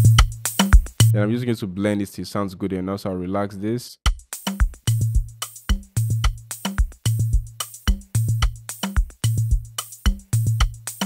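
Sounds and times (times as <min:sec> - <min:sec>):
programmed drum loop: 0:00.0 - 0:01.3, 0:04.0 - 0:11.0.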